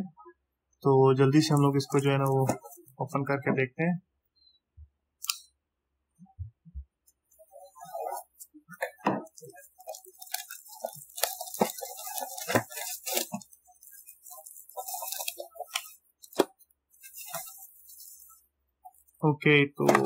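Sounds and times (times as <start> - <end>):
plastic wrap tearing and crinkling: 1.4 - 2.9, 7.4 - 19.2.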